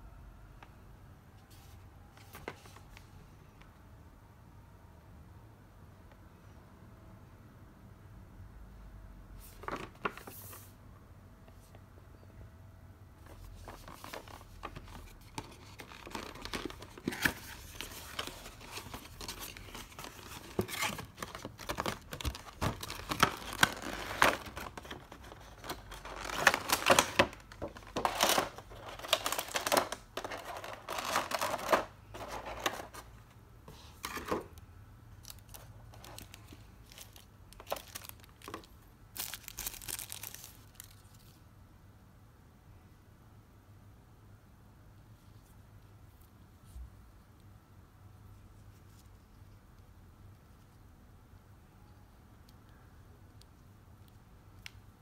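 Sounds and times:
plastic and cardboard rustling: 9.4s - 10.7s, 13.2s - 34.6s, 35.2s - 41.4s.

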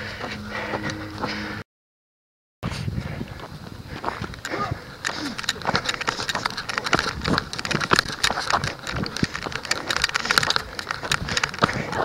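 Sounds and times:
running footsteps on dry dirt: 0.0s - 1.6s, 2.7s - 12.0s.

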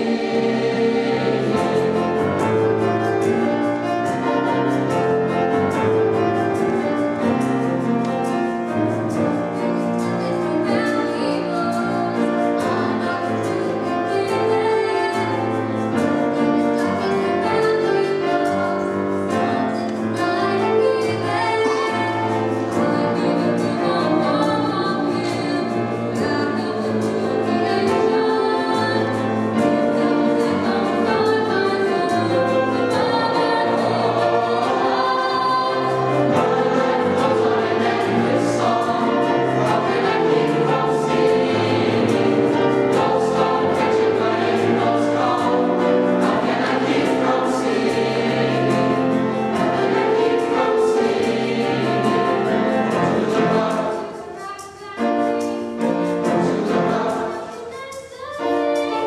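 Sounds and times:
choir singing in harmony: 0.0s - 59.0s
piano accompaniment: 0.0s - 59.0s.

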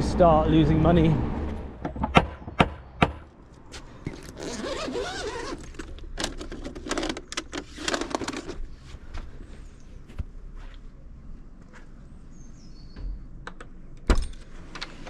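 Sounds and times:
backpack zipper unzipping: 4.3s - 5.6s.

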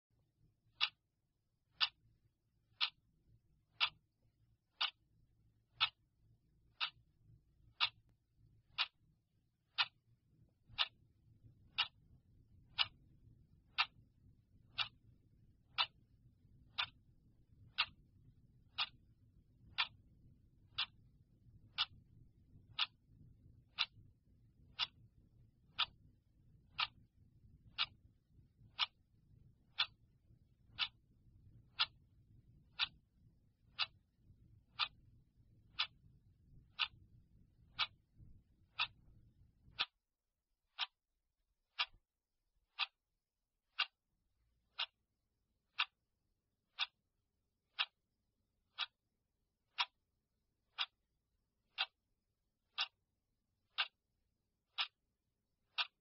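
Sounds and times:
clock ticking: 0.6s - 40.1s, 40.7s - 56.0s.

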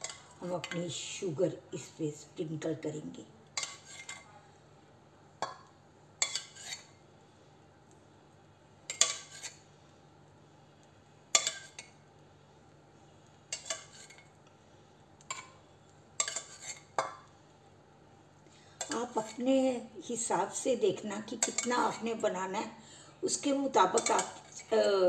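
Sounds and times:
spoon scraping a steel pot: 3.6s - 4.3s, 6.2s - 7.0s, 8.9s - 9.6s, 13.5s - 14.3s, 16.2s - 17.0s, 21.4s - 22.0s, 23.9s - 24.8s.

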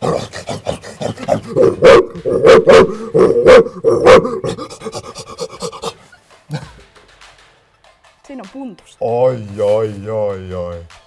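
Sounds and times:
man imitating dog barks: 0.0s - 5.9s.

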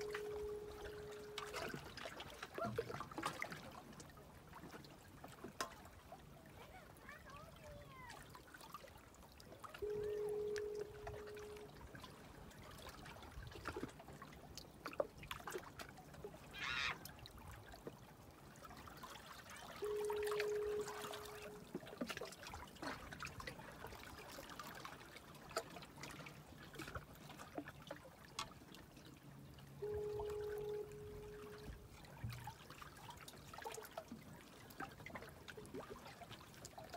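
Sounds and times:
foghorn low tone: 0.0s - 2.0s, 9.8s - 12.0s, 19.8s - 21.8s, 29.8s - 32.0s
water rushing: 0.0s - 4.0s, 4.6s - 13.9s, 18.7s - 27.7s, 29.8s - 34.0s
water lapping among rocks: 0.0s - 36.9s.

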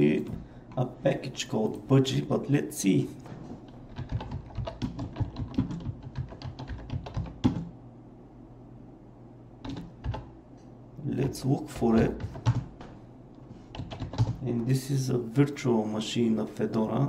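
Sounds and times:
computer keyboard typing: 3.7s - 7.7s, 9.6s - 10.3s, 11.9s - 12.7s, 13.7s - 14.4s.

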